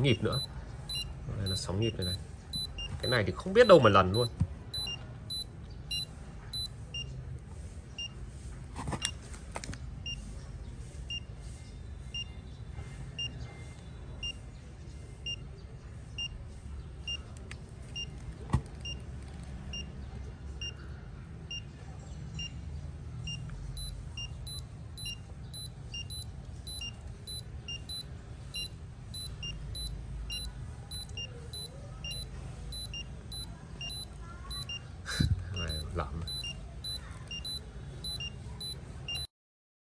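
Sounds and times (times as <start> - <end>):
pulse oximeter beeping: 0.0 - 7.1, 8.0 - 8.2, 10.0 - 10.3, 11.1 - 11.3, 12.1 - 12.4, 13.2 - 13.6, 14.2 - 14.4, 15.2 - 15.5, 16.2 - 16.4, 17.9 - 18.2, 18.8 - 19.1, 19.7 - 20.0, 22.4 - 22.6, 23.2 - 39.3.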